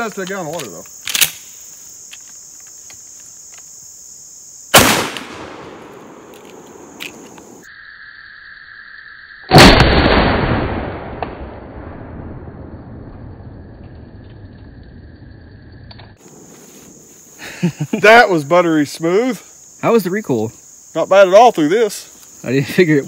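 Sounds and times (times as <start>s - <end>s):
shotgun blast with echo: 4.8s - 6.9s, 9.5s - 11.9s.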